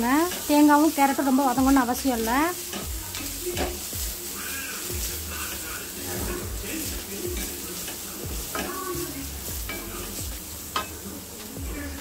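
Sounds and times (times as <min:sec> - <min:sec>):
light sizzle of frying: 0:00.0 - 0:12.0
wooden spatula scraping a pan: 0:00.1 - 0:12.0.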